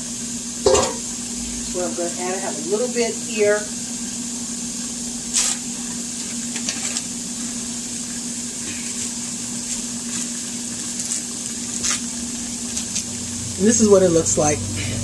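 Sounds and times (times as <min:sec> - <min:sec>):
low steady hum: 0:00.0 - 0:06.0.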